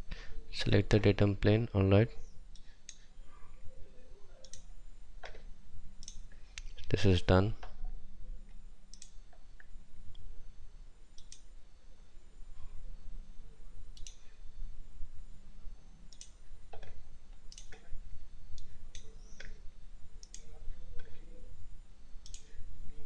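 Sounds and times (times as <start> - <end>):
low steady hum: 0.0 - 23.0
computer mouse clicks: 2.5 - 3.1, 4.4 - 5.4, 6.0 - 6.8, 8.9 - 9.7, 11.2 - 11.5, 13.9 - 14.3, 16.1 - 17.9, 18.5 - 19.6, 20.2 - 21.2, 22.2 - 22.5.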